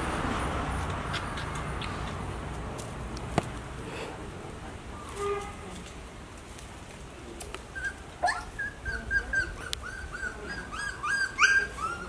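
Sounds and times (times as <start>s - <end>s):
puppies whimpering and whining: 7.7s - 12.0s
puppy yelping: 7.8s - 12.0s.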